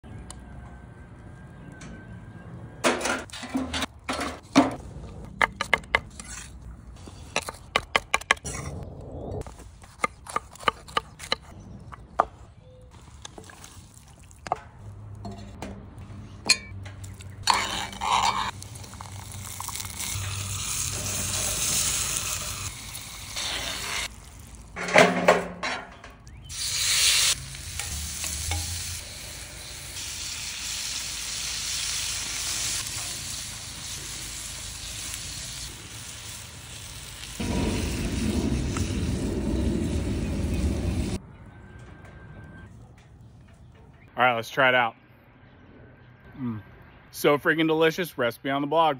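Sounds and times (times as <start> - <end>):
butter and shrimp sizzling: 17.5 - 24.8, 26.5 - 41.2.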